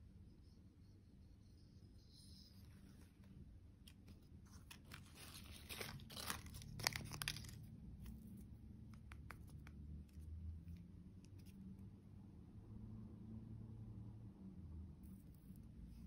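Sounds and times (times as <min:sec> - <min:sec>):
plastic wrapping crinkling and tearing: 0:04.5 - 0:08.1.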